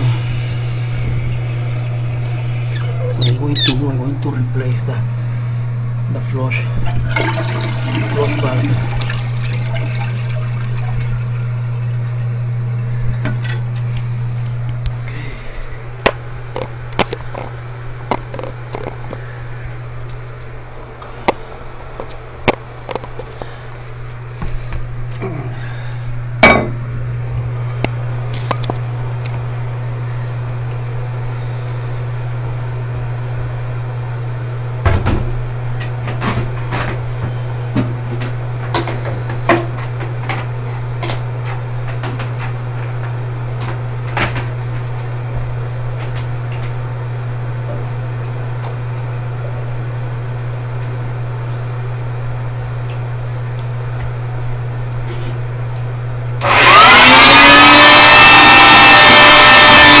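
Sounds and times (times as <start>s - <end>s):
shop vacuum motor whining: 0.0s - 15.8s, 55.8s - 60.0s.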